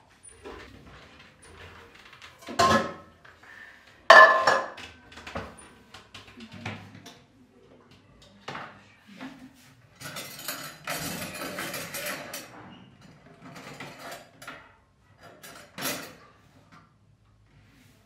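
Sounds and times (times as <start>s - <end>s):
items knocking on shelves: 4.1s - 4.8s.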